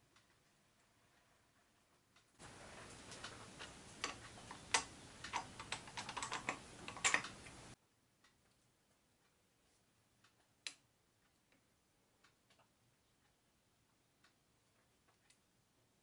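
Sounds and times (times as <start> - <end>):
small steel parts clicking: 2.9 - 7.6.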